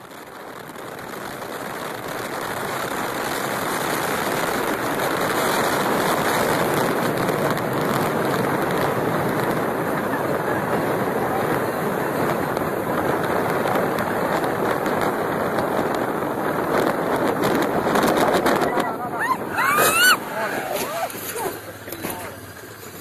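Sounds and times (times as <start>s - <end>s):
road and wind noise from vehicle: 0.0s - 23.0s.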